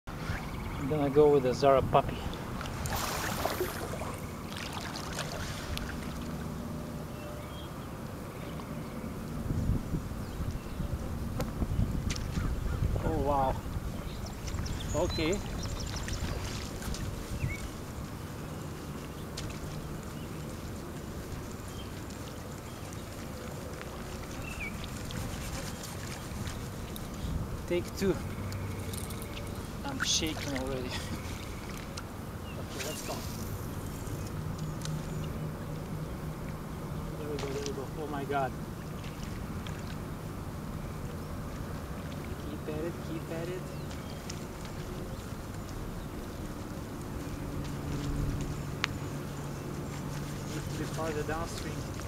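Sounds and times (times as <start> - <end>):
light water noise: 0.1 - 52.0
wind rumble on microphone: 5.2 - 31.6, 38.6 - 52.0.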